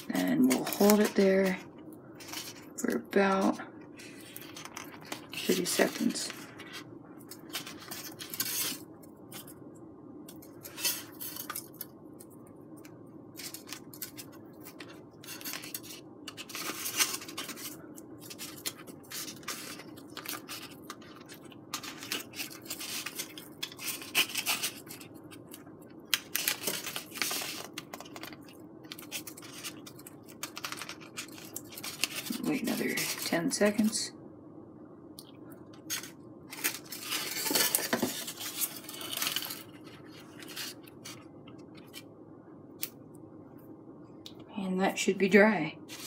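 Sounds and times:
steady low hum: 0.0 - 46.0
foamboard scratching and rustling: 4.2 - 9.5, 13.4 - 25.5, 35.9 - 42.0.

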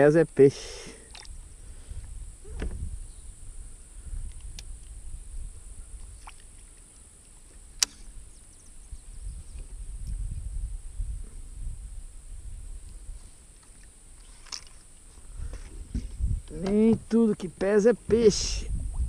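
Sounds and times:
wind rumble on microphone: 1.2 - 6.8, 7.5 - 13.5, 15.1 - 19.0
light tackle clicks: 4.2 - 5.0.

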